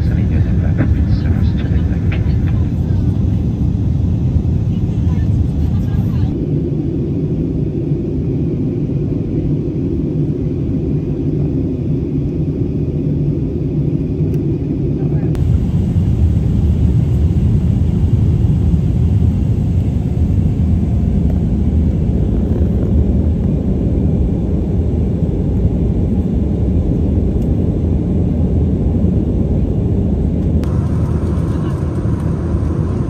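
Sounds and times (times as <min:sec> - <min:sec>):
airplane cabin rumble: 0:00.0 - 0:33.0.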